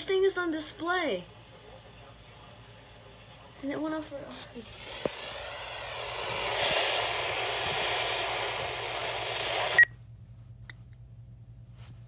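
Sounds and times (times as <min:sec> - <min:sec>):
radio static hiss: 0:00.0 - 0:09.9
radio switch click: 0:06.5 - 0:09.8.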